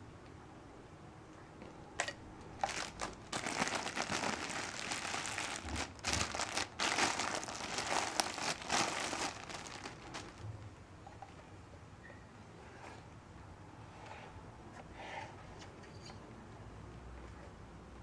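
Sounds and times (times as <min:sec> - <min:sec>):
plastic bag crinkling: 0:02.6 - 0:10.6.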